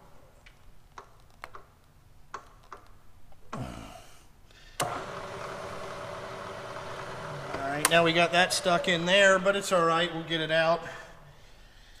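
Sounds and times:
milling machine motor humming: 4.8 - 10.3.

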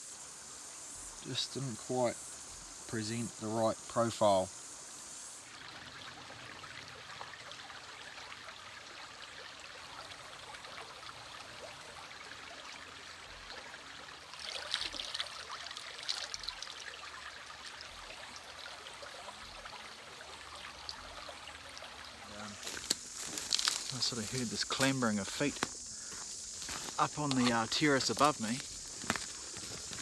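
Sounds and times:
creek trickling and babbling: 0.0 - 30.0
water bottle filling in stream: 5.5 - 25.3.

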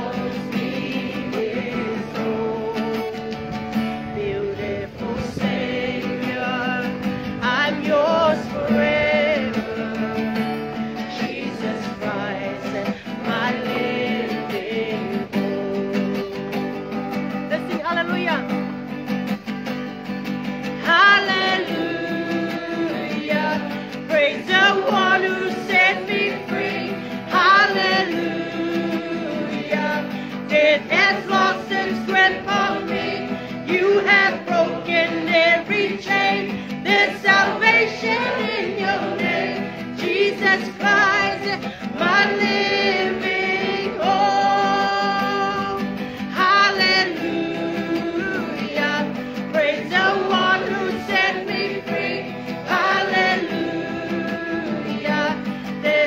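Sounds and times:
acoustic guitar: 0.0 - 56.0
person singing: 20.8 - 56.0.

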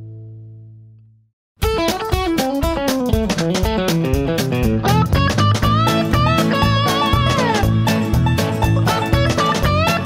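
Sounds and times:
quick plucked notes: 1.6 - 10.0
low bass line: 4.2 - 10.0.

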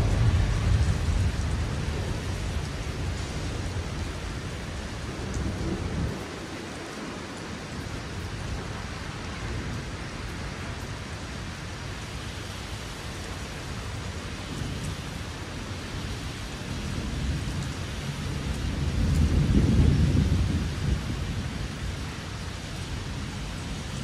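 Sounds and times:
low rumble of thunder: 0.0 - 11.8, 13.2 - 24.0
steady rain hiss: 0.0 - 24.0.

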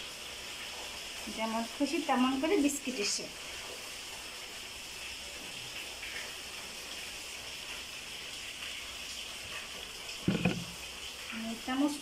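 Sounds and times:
rain falling: 0.0 - 12.0
loud thump: 10.3 - 10.7.

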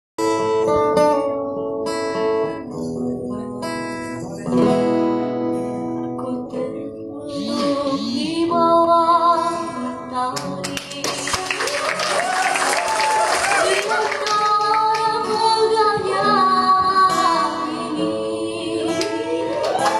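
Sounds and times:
acoustic guitar chords: 0.2 - 11.5, 13.8 - 19.9
people singing: 6.2 - 11.4, 13.6 - 19.9.

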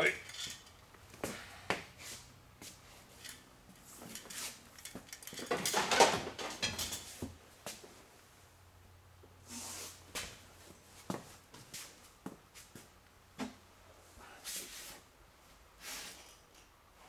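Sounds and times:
tools knocking and clattering: 3.2 - 7.3.

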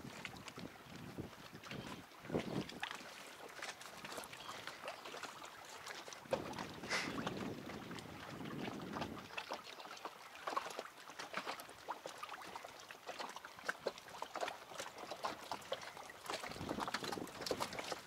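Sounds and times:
wind on microphone: 0.0 - 2.8, 6.3 - 9.4, 16.3 - 18.0
water lapping and trickling: 0.0 - 18.0.

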